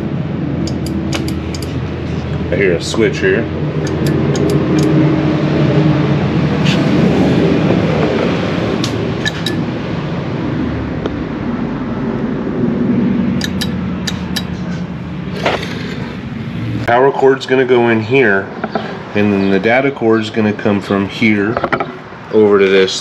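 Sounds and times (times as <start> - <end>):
low mechanical hum: 0.0 - 16.9.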